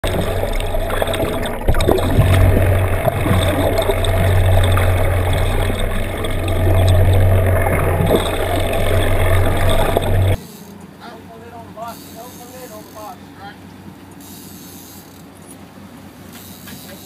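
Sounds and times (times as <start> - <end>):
water noise on microphone: 0.0 - 10.4
boat engine drone underwater: 0.0 - 10.6.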